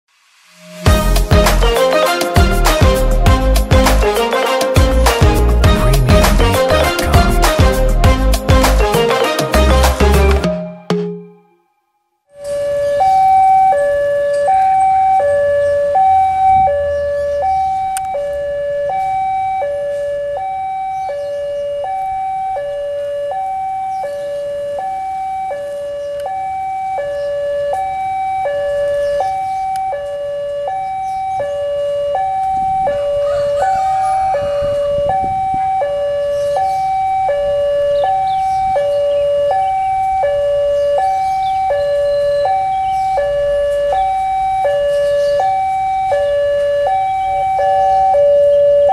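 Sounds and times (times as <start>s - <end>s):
two-tone crossing alarm chime: 12.4s - 48.9s.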